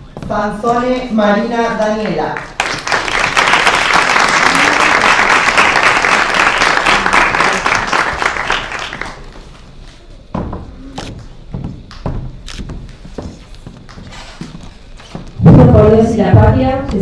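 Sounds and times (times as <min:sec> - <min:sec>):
heeled footsteps on wooden floor: 0:00.0 - 0:01.1, 0:09.4 - 0:15.7
crowd applauding: 0:02.3 - 0:09.6.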